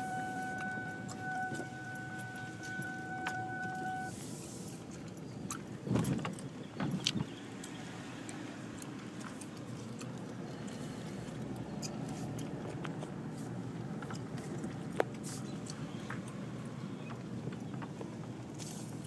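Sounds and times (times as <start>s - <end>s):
faint steady tone: 0.0s - 4.4s
car engine and road noise: 0.0s - 19.0s.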